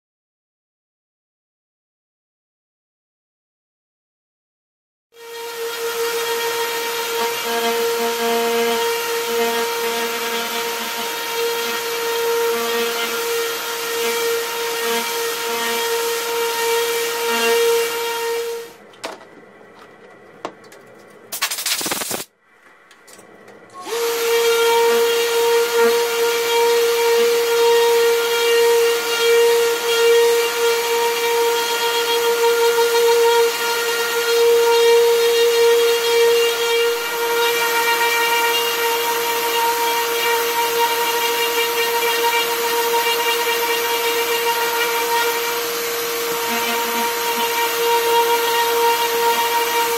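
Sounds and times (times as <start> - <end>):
orbital sander whining: 5.2 - 18.8, 23.8 - 49.9.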